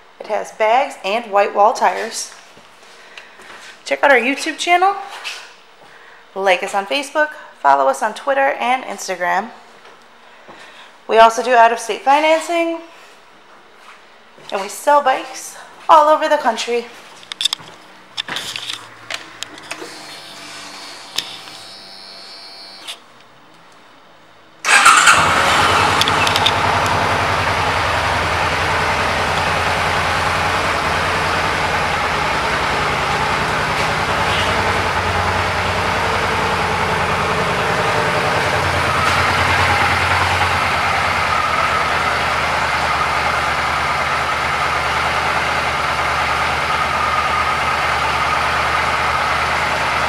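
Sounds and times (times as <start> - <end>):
motorcycle engine idling: 24.7 - 50.0.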